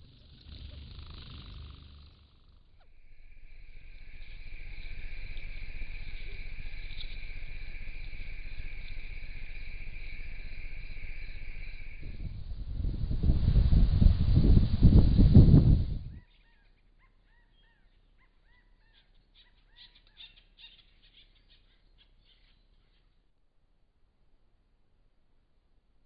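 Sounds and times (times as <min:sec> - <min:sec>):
low rumbling noise: 0:00.0 - 0:16.2
crickets trilling: 0:00.0 - 0:16.3.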